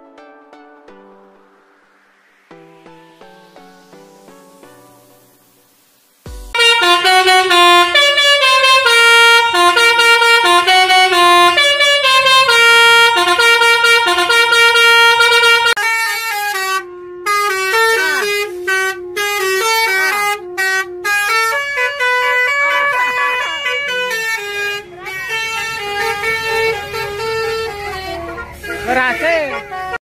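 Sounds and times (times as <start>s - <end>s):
air horn playing melody: 6.3s - 30.0s.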